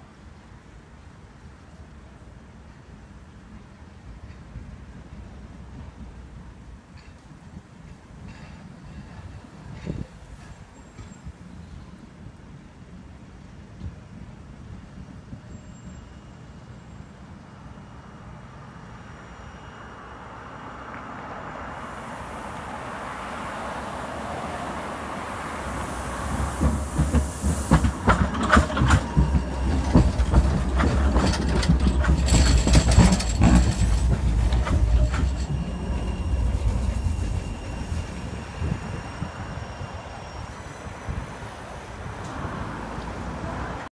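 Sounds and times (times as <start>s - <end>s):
tram passing rumble: 0.0s - 43.9s
wheels clicking on track: 22.0s - 40.4s.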